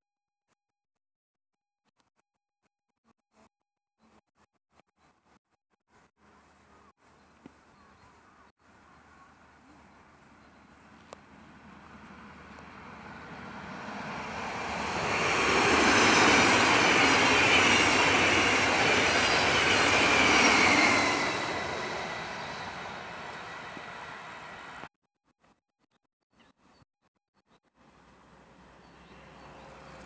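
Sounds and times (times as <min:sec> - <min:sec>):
high train whine: 0:11.4 - 0:24.9
train wheels rushing on rails: 0:13.0 - 0:24.9.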